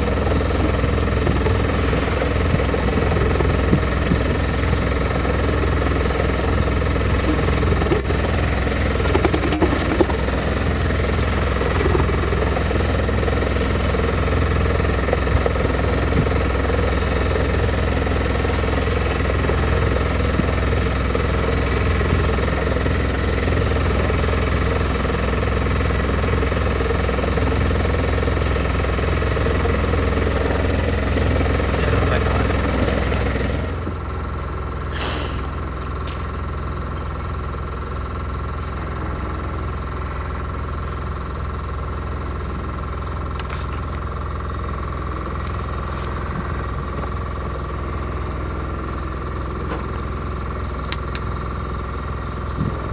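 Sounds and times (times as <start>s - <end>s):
engine droning: 0.0s - 52.9s.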